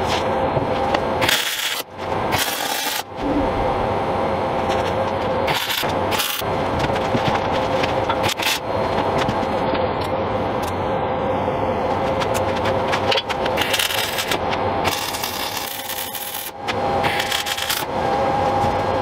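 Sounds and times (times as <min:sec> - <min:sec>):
steady machine hum: 0:00.0 - 0:19.0
welding arc crackling hiss: 0:13.6 - 0:17.8.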